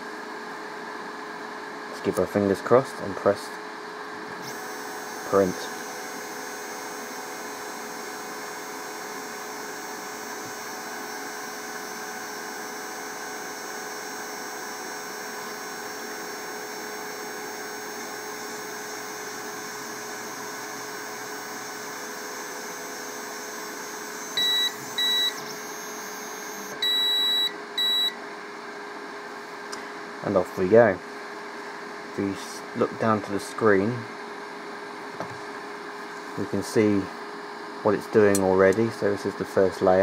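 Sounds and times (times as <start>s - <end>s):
printer fan and motor hum: 0.0s - 40.0s
short electronic beeps: 24.4s - 25.4s, 26.8s - 28.2s.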